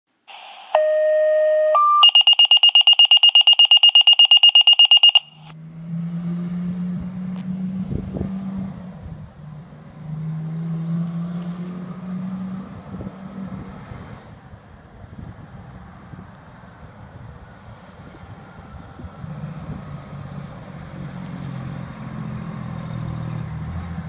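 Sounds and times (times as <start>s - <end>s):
electronic alert tones: 0.3s - 5.5s
rapid beeping: 0.3s - 5.5s.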